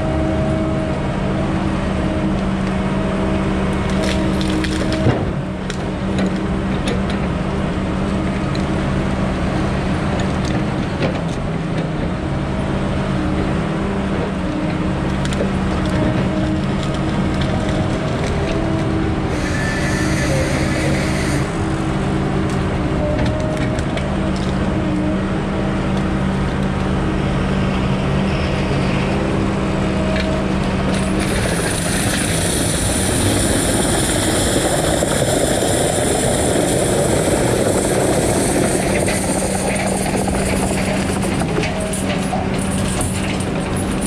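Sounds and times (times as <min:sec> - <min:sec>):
diesel engine running: 0:00.0 - 0:44.0
rushing noise: 0:19.0 - 0:22.1, 0:27.5 - 0:43.2.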